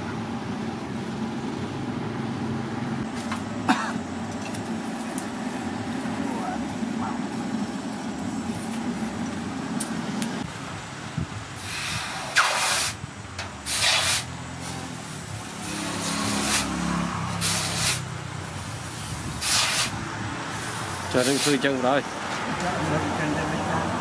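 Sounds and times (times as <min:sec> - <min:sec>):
hot steel hissing in water: 0:11.6 - 0:13.0, 0:13.6 - 0:18.1, 0:18.8 - 0:21.7.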